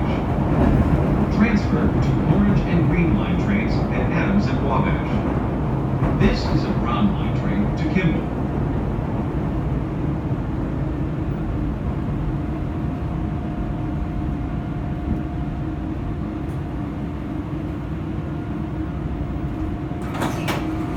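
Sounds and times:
train car rumbling: 0:00.0 - 0:20.9.

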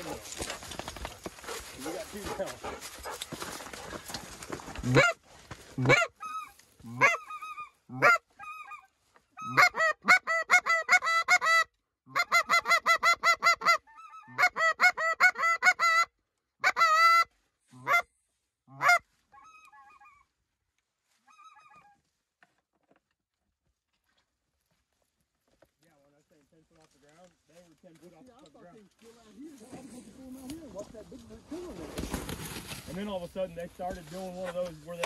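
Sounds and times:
geese yelping calls: 0:05.8 - 0:18.1, 0:18.7 - 0:20.3, 0:21.2 - 0:22.0.

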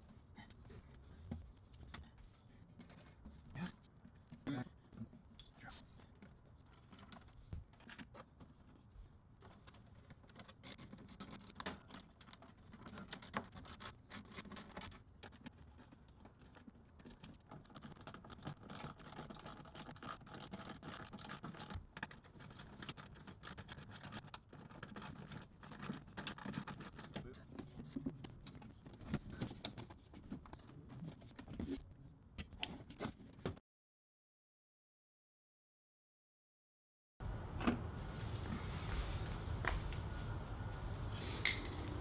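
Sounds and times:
plastic parts rattling: 0:09.5 - 0:27.3
metal wrench clicking: 0:17.6 - 0:27.2.

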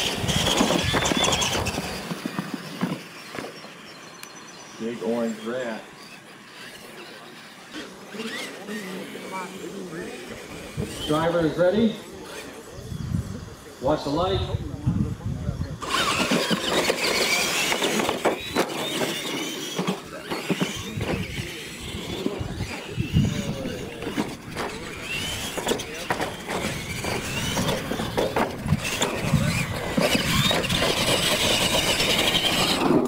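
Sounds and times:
trucks knocking and clattering: 0:00.0 - 0:03.8, 0:15.8 - 0:33.0
electric motors whining: 0:00.0 - 0:33.0.

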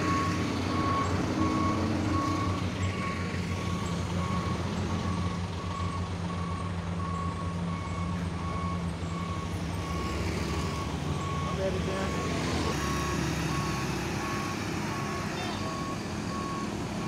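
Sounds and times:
reversing alarm beeping: 0:00.0 - 0:17.0
truck engine running: 0:00.0 - 0:17.0.

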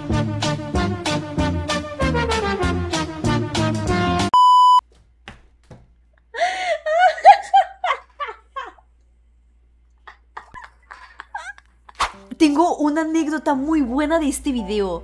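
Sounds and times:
upbeat music: 0:00.0 - 0:04.4
loud beep: 0:04.4 - 0:04.8
woman laughing squeal: 0:06.4 - 0:08.8.

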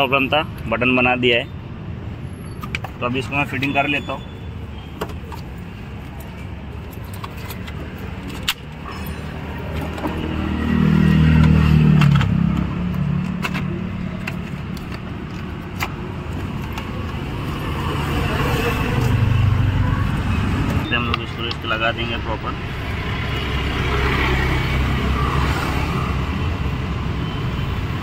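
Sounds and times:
vehicle engine rumble: 0:01.7 - 0:28.0.

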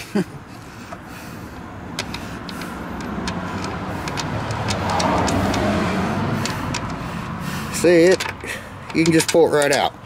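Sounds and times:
motor vehicle passing: 0:00.4 - 0:10.0
light metal clicks: 0:01.9 - 0:05.8, 0:06.4 - 0:07.0, 0:08.0 - 0:10.0.

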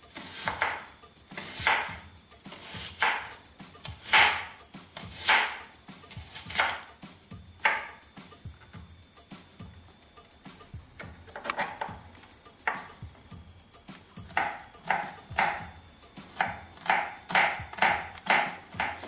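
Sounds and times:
knife slicing onion on cutting board: 0:00.1 - 0:07.0, 0:07.6 - 0:08.1, 0:11.0 - 0:13.0, 0:14.2 - 0:19.0.

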